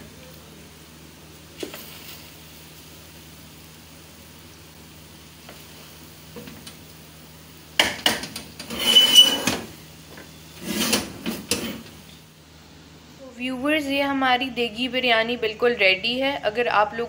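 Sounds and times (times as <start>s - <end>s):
metal squeal: 8.7s - 9.6s
spoon scraping metal pot: 8.7s - 9.6s.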